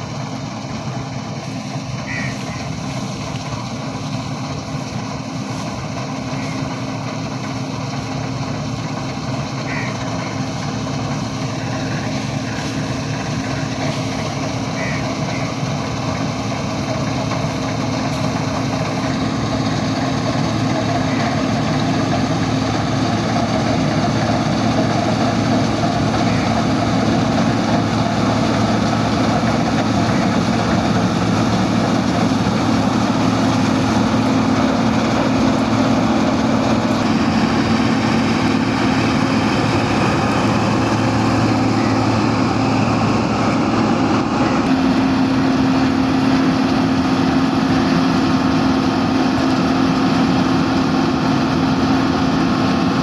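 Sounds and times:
combine harvester engine drone: 0:00.0 - 0:53.0.

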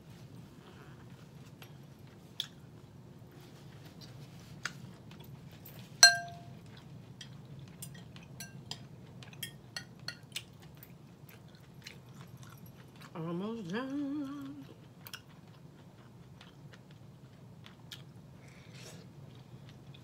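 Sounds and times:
fork clinking on glass bowl: 0:06.0 - 0:06.5, 0:07.8 - 0:10.3.

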